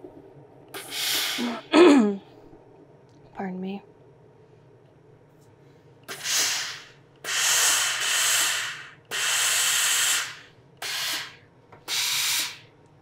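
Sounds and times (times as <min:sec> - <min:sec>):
steam iron hissing: 0:00.8 - 0:01.6, 0:06.1 - 0:12.6.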